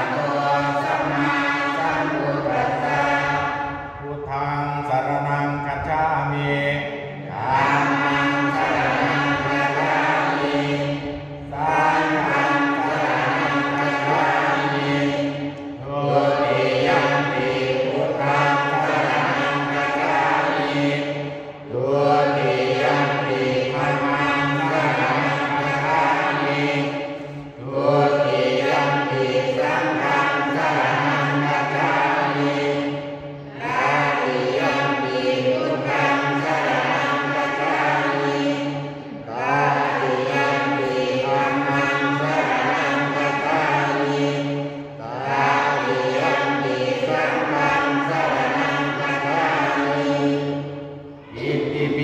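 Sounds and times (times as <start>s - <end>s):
man chanting into a microphone: 0.0s - 15.2s.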